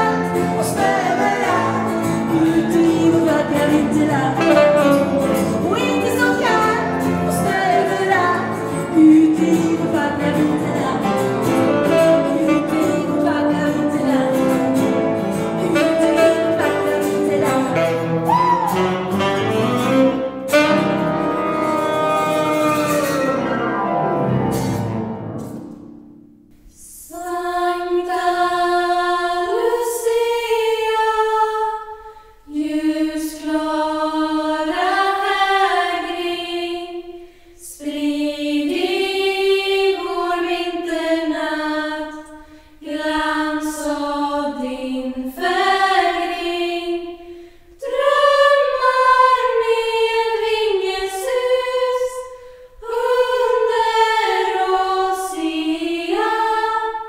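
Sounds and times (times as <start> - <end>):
female choir singing a cappella: 0.0 - 19.1, 26.7 - 57.0
band chord with cello and guitar: 0.0 - 26.4.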